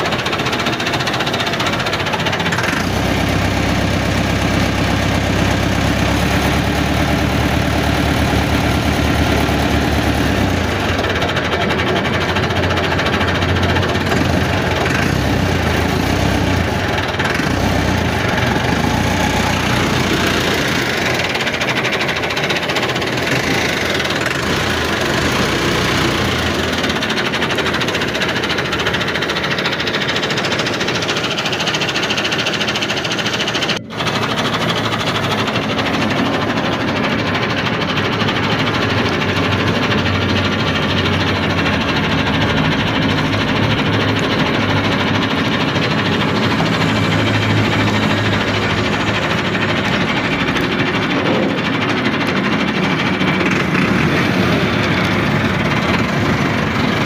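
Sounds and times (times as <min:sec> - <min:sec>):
engine running with knocking rattle: 0:00.0 - 0:57.0.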